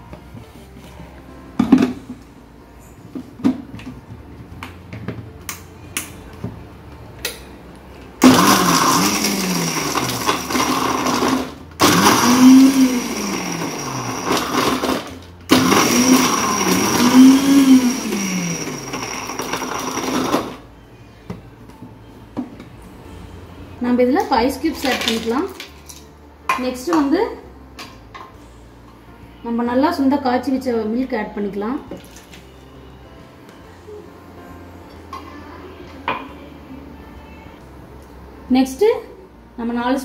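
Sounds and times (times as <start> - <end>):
mixer grinder motor whine: 8.2 - 20.6.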